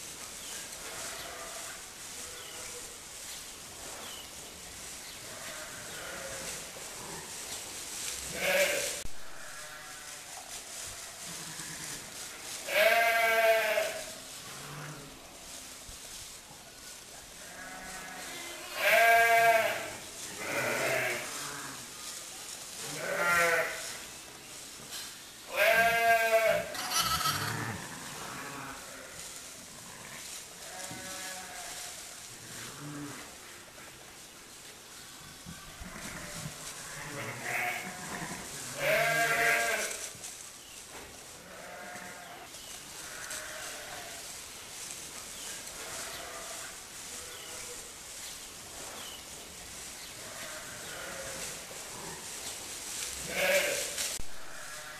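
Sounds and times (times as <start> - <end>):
sheep bleating: 5.4 - 6.5, 8.3 - 10.2, 12.7 - 14.0, 17.4 - 21.8, 23.0 - 23.8, 25.5 - 29.2, 29.8 - 31.7, 35.8 - 39.9, 41.4 - 42.3, 43.0 - 44.2, 50.2 - 51.4, 53.2 - 54.9.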